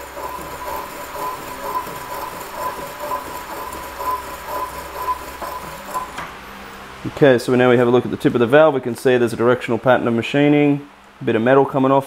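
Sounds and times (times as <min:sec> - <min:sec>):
rhythmic metal grinding on stone: 0:00.0 - 0:06.2.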